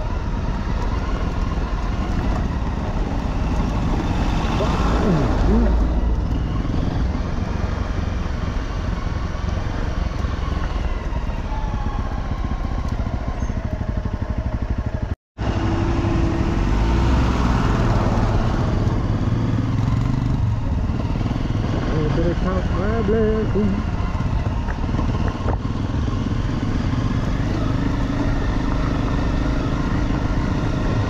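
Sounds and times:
dirt bike engine running: 11.8s - 31.0s.

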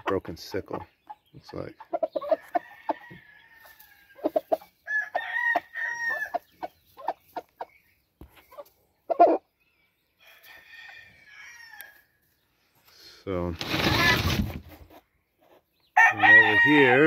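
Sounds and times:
chickens clucking: 0.0s - 11.4s
rooster crowing: 4.9s - 6.4s, 10.2s - 12.0s, 16.0s - 17.0s.

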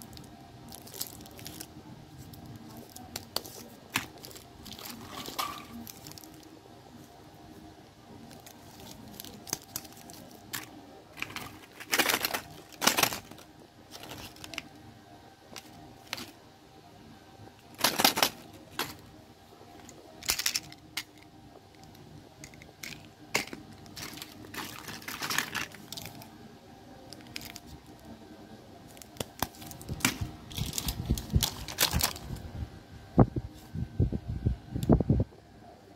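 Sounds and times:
plastic wrappers crinkling: 0.0s - 6.6s, 8.2s - 14.8s, 15.5s - 16.4s, 17.6s - 19.1s, 19.8s - 21.2s, 21.8s - 26.3s, 27.1s - 28.1s, 28.9s - 32.4s.

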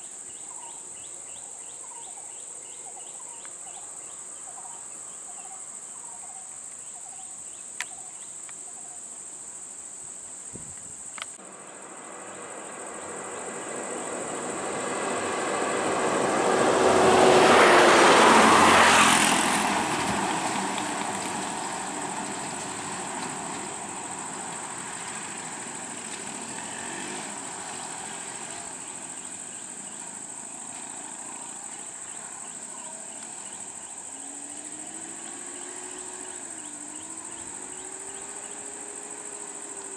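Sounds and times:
insects droning: 0.0s - 39.9s
vehicle engine passing by: 11.4s - 39.9s.

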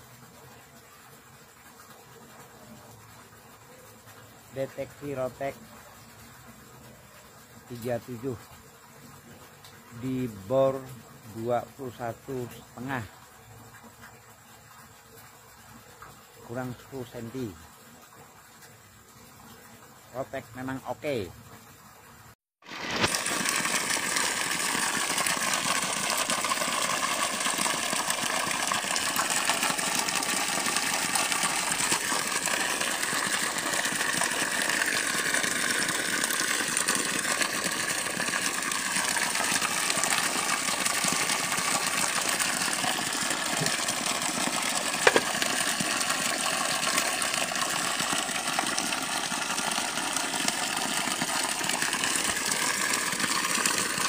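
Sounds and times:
water gushing from pipe: 0.0s - 21.3s, 21.9s - 54.0s
borehole pump engine running: 22.7s - 54.0s.

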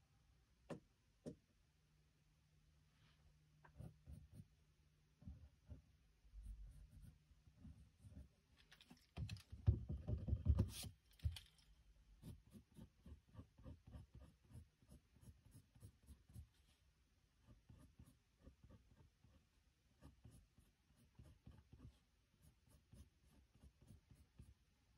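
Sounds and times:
sketchbook rustling and knocking: 8.1s - 11.7s
pencil scratching on paper: 12.2s - 16.8s, 17.4s - 24.6s.

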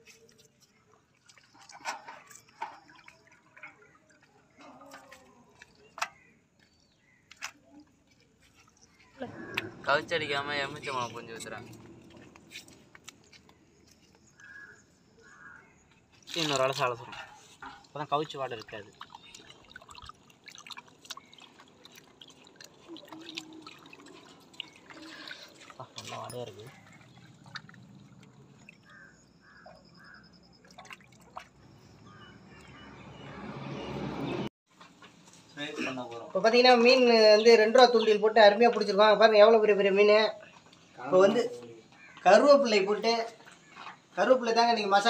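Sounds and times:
wet hand sounds: 0.0s - 32.8s
water splashes and drips: 0.0s - 33.2s, 37.8s - 45.0s
lemon juice dripping: 17.8s - 29.2s.

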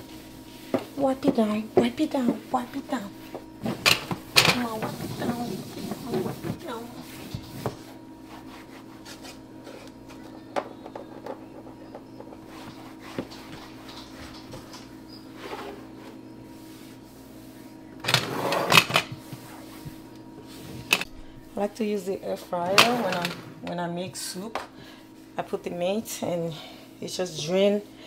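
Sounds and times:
faint steady hum: 0.0s - 28.0s
wipe rubbing on surface: 4.8s - 9.8s, 12.4s - 13.9s, 15.3s - 17.8s, 19.2s - 20.9s.

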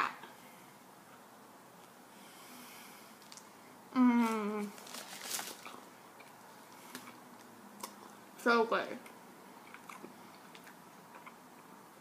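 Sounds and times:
woman humming mmm: 3.9s - 4.8s
woman chewing: 9.6s - 11.7s.

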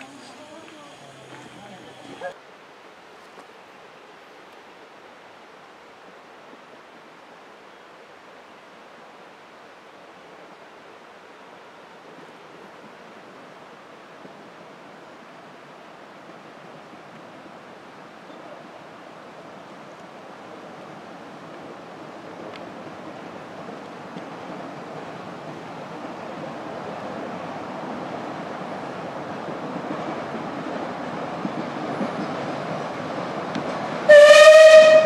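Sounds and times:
steam locomotive rushing on rails: 0.0s - 2.4s, 12.0s - 35.0s.

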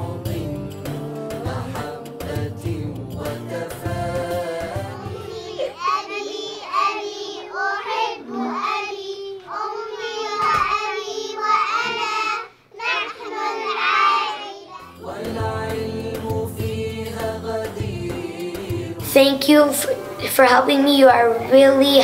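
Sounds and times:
young children singing: 1.4s - 22.0s.

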